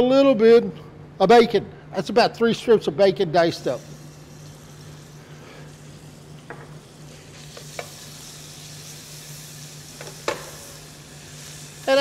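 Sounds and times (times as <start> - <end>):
steady low hum: 0.0 - 12.0
bacon sizzling in a pan: 3.9 - 12.0.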